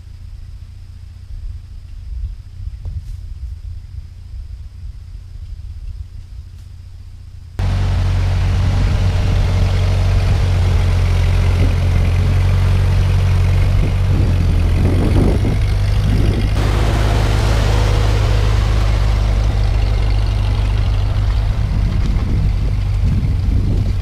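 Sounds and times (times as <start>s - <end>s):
tractor engine running: 7.0s - 24.0s.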